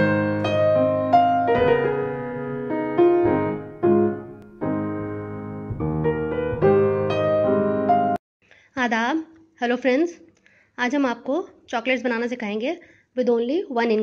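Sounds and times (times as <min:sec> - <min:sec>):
slow piano melody: 0:00.0 - 0:08.2.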